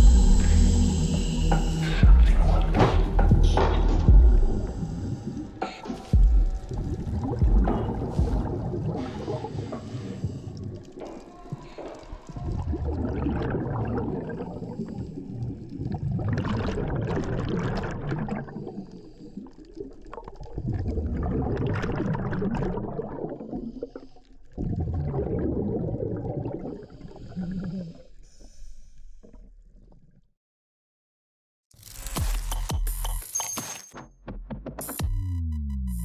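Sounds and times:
regulator bubbles gurgling underwater: 4.1s - 28.0s.

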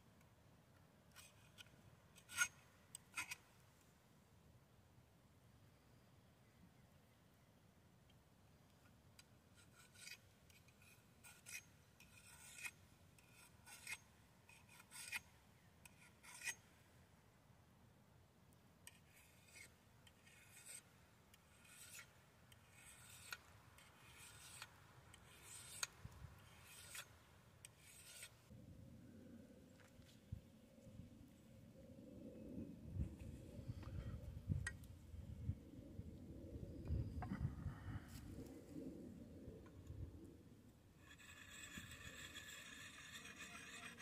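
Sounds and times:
rasping scraping strokes: 1.1s - 3.4s, 9.5s - 16.6s, 18.9s - 28.6s, 41.0s - 44.0s.

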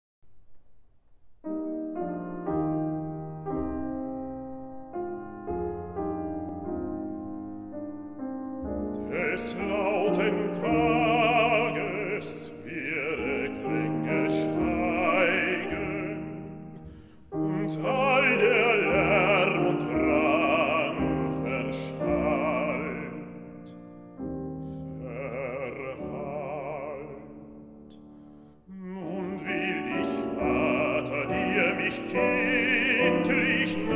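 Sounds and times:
grand piano playing chords: 1.2s - 33.9s
man singing with vibrato: 9.0s - 16.8s, 17.4s - 23.7s, 24.9s - 27.7s, 28.7s - 33.9s.

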